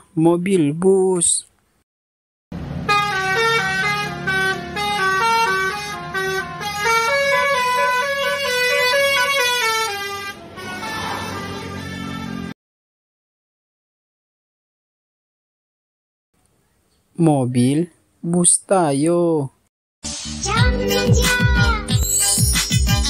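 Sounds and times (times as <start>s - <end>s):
bus engine running: 2.5s - 12.5s
musical air horn tune: 2.8s - 12.6s.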